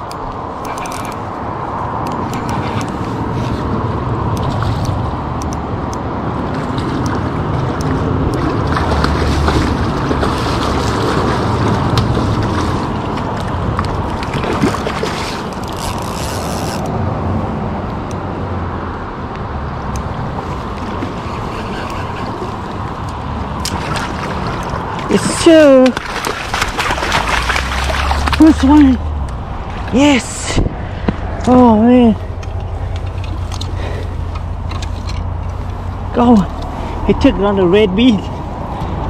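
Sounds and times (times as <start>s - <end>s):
rushing river water: 0.1s - 16.9s, 19.6s - 37.7s
wind buffeting microphone: 19.7s - 36.2s.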